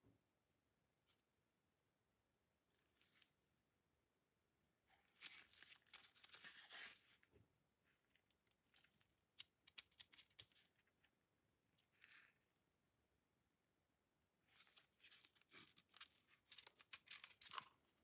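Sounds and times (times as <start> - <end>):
rubber gloves rustling: 2.7 - 3.5, 4.8 - 12.7, 14.4 - 18.0.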